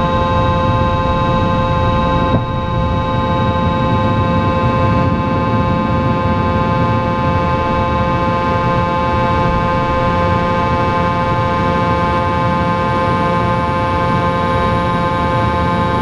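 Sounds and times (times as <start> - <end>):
loud rushing rumble: 0.0 - 10.1
jet engine whine: 0.0 - 16.0.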